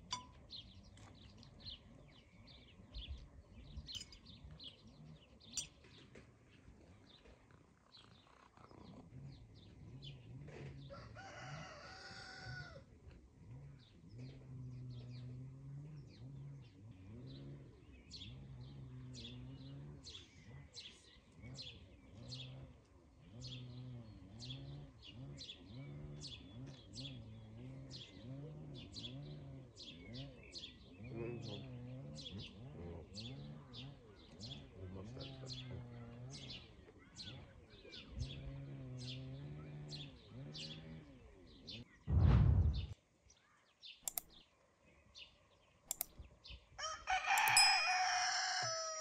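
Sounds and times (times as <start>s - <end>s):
low wavering hum: 0.0s - 7.5s, 12.7s - 43.0s
small birds chirping: 0.0s - 49.0s
rooster crowing: 10.8s - 12.9s, 46.8s - 49.0s.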